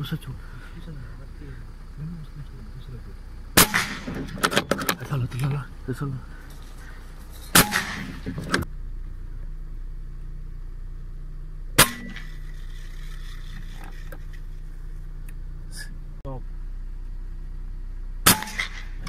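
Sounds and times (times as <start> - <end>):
low steady hum: 0.0 - 19.0
air rifle shots: 3.6 - 4.4, 7.5 - 8.2, 11.8 - 12.4, 18.2 - 19.0.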